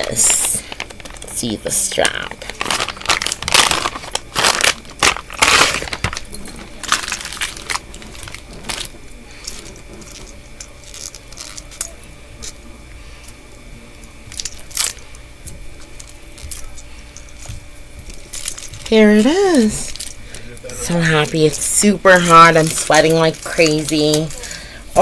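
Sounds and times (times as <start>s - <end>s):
plastic bag crinkling and tearing: 0.0s - 12.5s.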